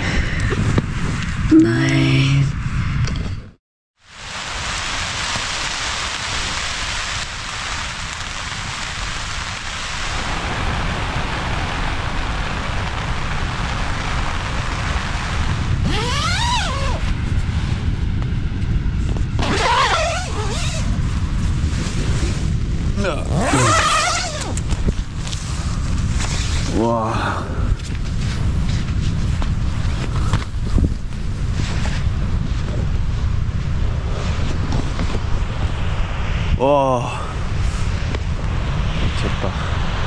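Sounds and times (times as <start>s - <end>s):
heavy rain falling: 4.1s - 17.0s.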